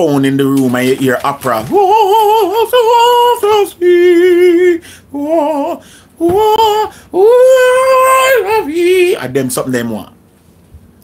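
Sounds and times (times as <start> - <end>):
person mock-singing opera: 1.0 - 9.4.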